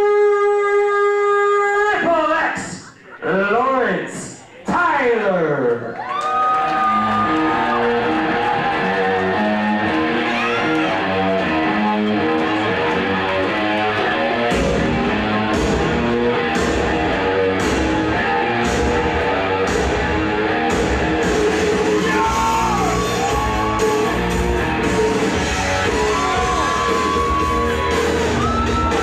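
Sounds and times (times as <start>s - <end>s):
rock music with electric guitar: 6.7s - 29.0s
drums and bass: 6.9s - 29.0s.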